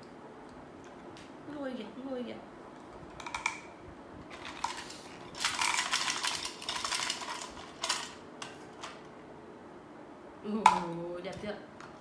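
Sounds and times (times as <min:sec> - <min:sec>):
plastic toys clattering: 0:03.1 - 0:03.7, 0:04.3 - 0:09.0.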